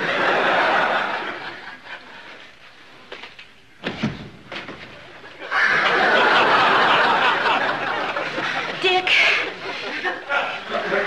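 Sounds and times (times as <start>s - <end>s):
audience laughter: 0.0s - 2.4s, 5.3s - 11.0s.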